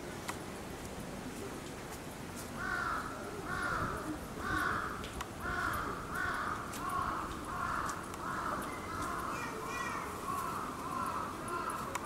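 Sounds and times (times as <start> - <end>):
bird cawing: 2.6 - 12.0.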